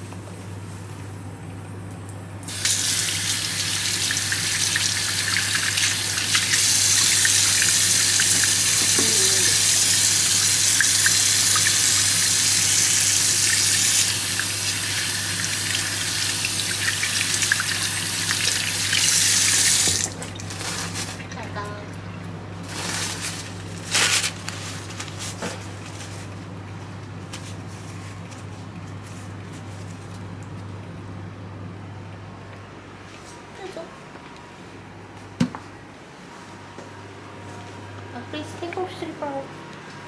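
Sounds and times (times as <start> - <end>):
water running from a tap: 2.5 - 20.5.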